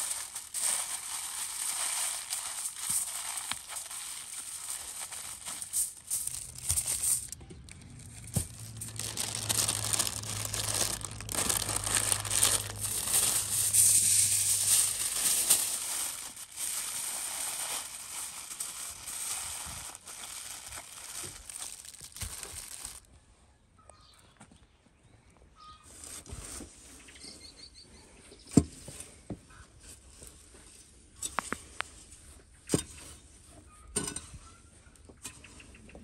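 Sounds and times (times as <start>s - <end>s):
aluminium foil crinkling: 0.0s - 23.1s.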